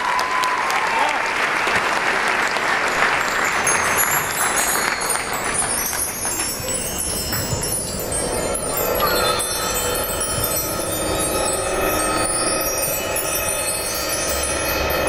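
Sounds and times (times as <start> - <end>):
crowd applause: 0.0 - 9.7
bar chimes swept: 3.2 - 15.0.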